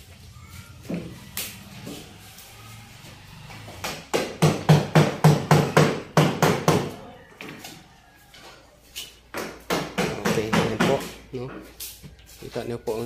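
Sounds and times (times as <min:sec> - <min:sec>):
rapid hammer strikes: 0:03.8 - 0:06.9.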